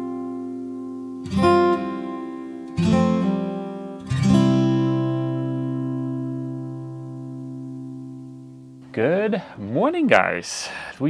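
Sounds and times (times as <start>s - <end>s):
acoustic guitar strumming chords: 0.0s - 10.4s.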